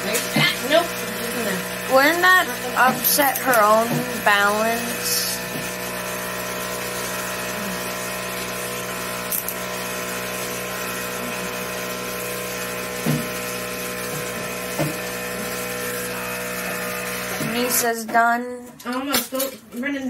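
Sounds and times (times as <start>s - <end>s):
vacuum pump humming: 0.0s - 19.1s.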